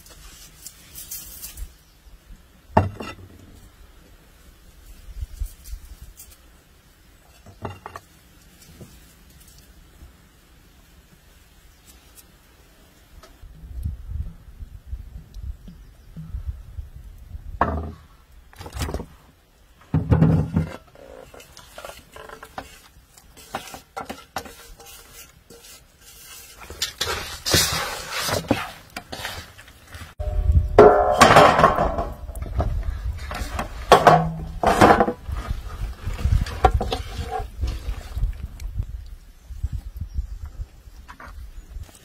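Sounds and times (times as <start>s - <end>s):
handling knocks and rustles: 19.8s - 38.9s
metal bowls clinking: 30.2s - 32.2s.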